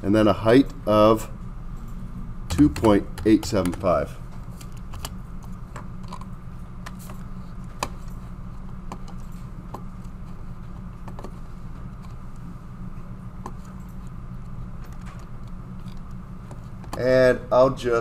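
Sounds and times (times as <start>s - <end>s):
low electrical hum: 0.0s - 18.0s
keyboard taps: 2.5s - 4.0s.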